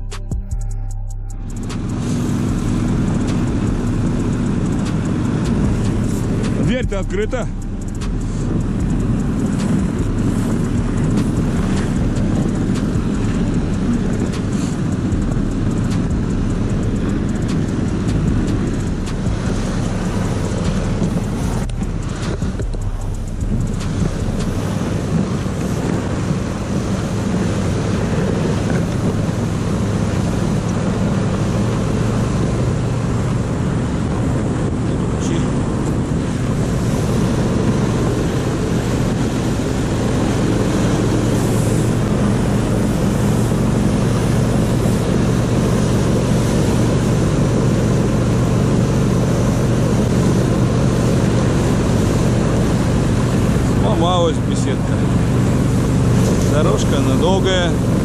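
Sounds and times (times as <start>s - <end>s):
snow tow engine running: 0.0s - 58.0s
wind noise on microphone: 0.0s - 58.0s.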